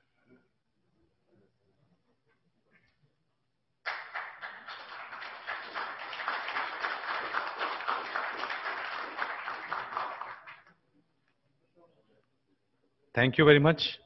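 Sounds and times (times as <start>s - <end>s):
audience applauding: 3.9s - 10.7s.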